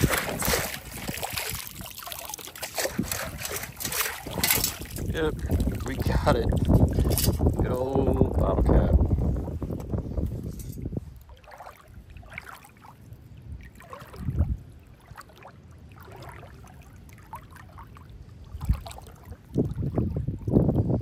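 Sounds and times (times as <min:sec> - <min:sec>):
river water splashing: 0:00.0 - 0:07.5, 0:11.2 - 0:20.2
dull thumps underwater: 0:00.0 - 0:07.6
water sloshing and trickling: 0:00.0 - 0:21.0.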